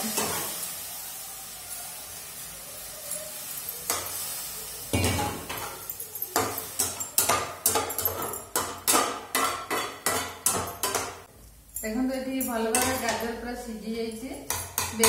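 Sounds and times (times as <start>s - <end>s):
vegetables sizzling in a pan: 0.0s - 11.7s.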